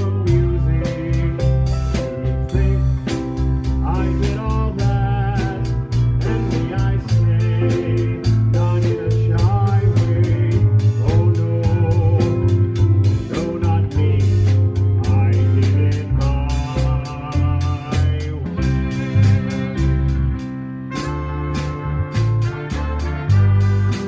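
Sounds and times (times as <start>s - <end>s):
person singing: 0.0s - 20.2s
small band playing a song: 0.0s - 24.0s.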